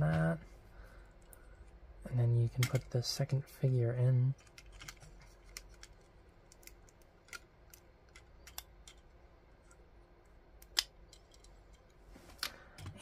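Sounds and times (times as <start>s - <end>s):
plastic toy pieces clicking: 4.4s - 9.0s.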